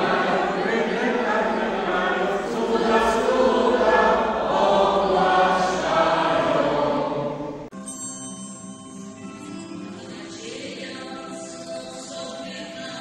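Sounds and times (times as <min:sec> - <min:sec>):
congregation singing a carol: 0:00.0 - 0:07.7
small group singing: 0:00.0 - 0:07.7.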